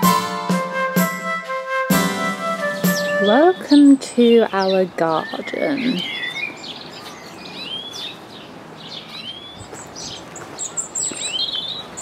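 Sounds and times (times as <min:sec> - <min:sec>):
small birds chirping: 0:02.7 - 0:12.0.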